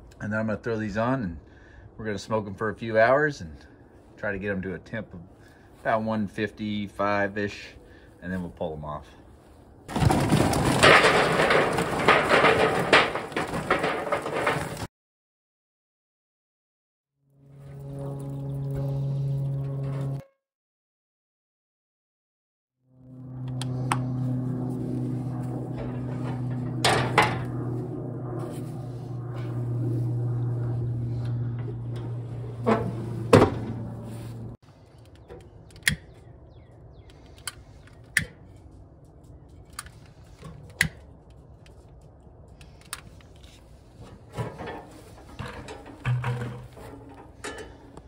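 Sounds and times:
steady low hum: 22.9s - 48.0s.

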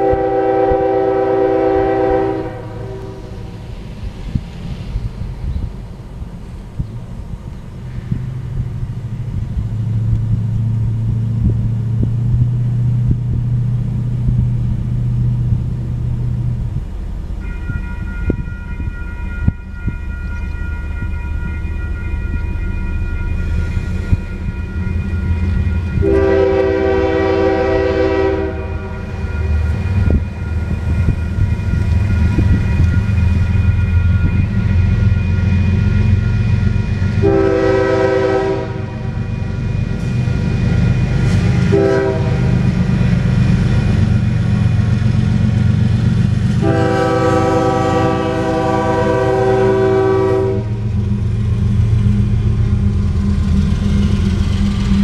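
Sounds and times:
locomotive air horn blasts: 0.0s - 3.6s, 24.1s - 30.3s, 35.7s - 40.6s, 41.2s - 42.7s, 46.6s - 50.9s
low rumble of train: 0.0s - 55.0s
crossing warning bell ringing: 14.9s - 55.0s.

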